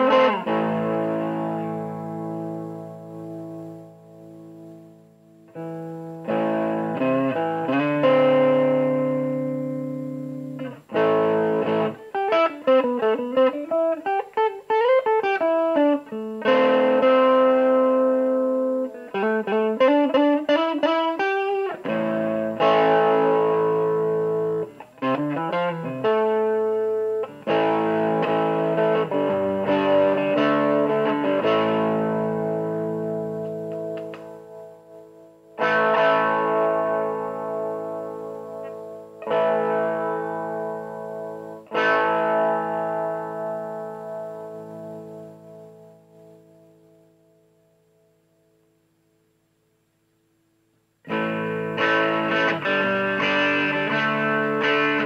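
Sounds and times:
overdriven electric guitar: 0.0 - 48.6, 50.9 - 55.0.

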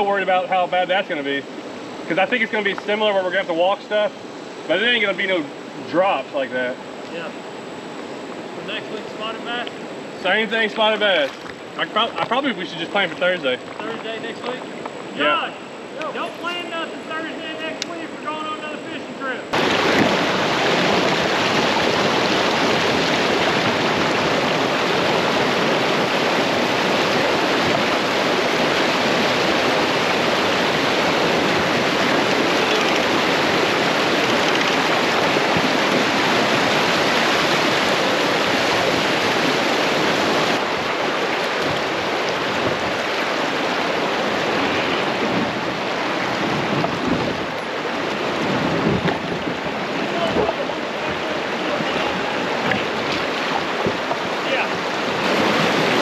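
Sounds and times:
water rushing over rocks: 19.5 - 56.0.

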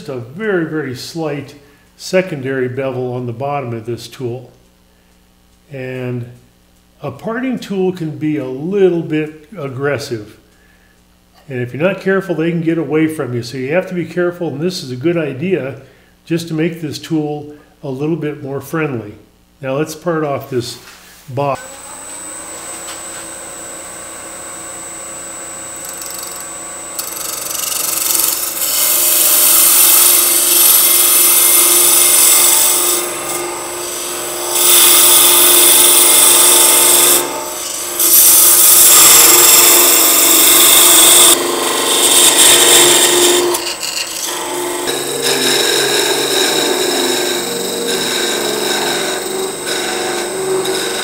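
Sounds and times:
lathe running: 21.6 - 51.0
tool cutting spinning wood: 21.6 - 51.0.

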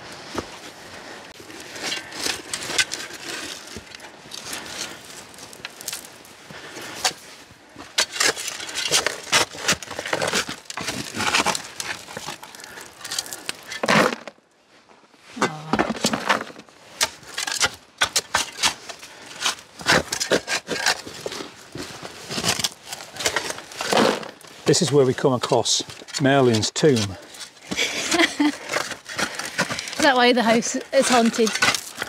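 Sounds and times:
digging tool scraping soil: 16.0 - 32.0.

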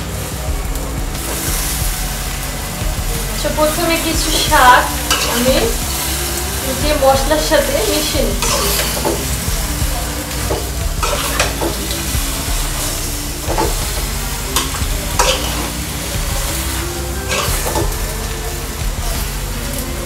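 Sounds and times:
frying sizzle: 0.0 - 20.0.

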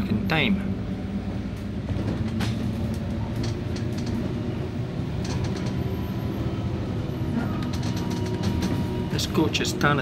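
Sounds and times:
bus engine running: 0.0 - 10.0
clicks and rattles: 2.1 - 4.3, 5.2 - 5.8.

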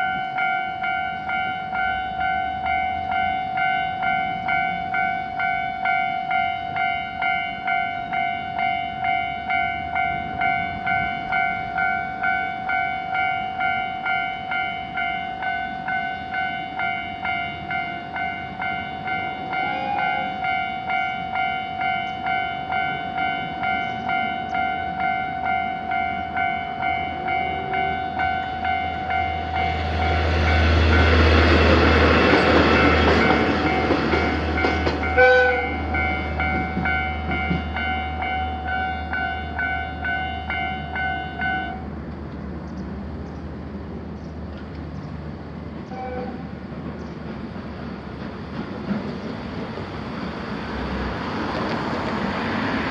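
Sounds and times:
level crossing warning bells: 0.0 - 41.9
diesel train passing: 0.0 - 52.9.

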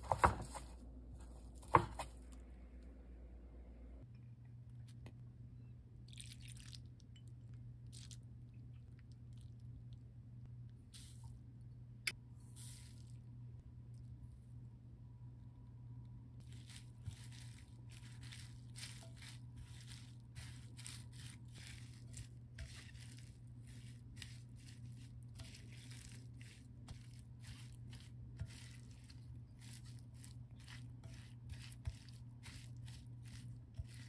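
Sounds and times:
spatula rustling and squishing: 0.0 - 2.4, 7.8 - 9.9, 12.5 - 13.4, 16.4 - 34.0.

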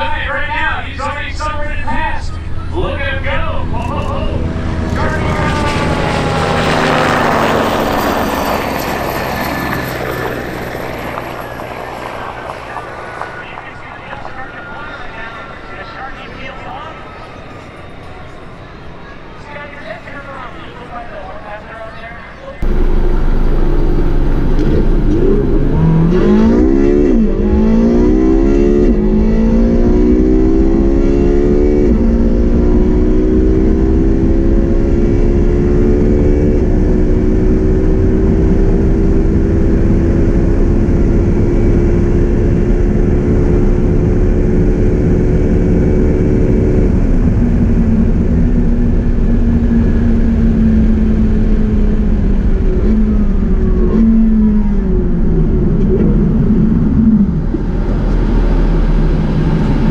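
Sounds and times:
road noise: 0.0 - 21.8, 22.4 - 59.9
car engine at full throttle: 3.8 - 7.6, 22.6 - 59.9.

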